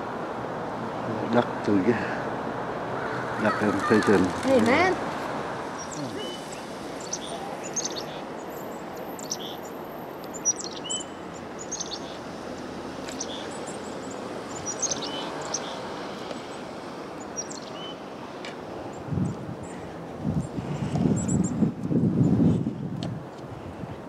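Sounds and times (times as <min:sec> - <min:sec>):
outdoor background hiss: 0:00.0 - 0:24.0
small songbirds chirping: 0:05.6 - 0:22.4.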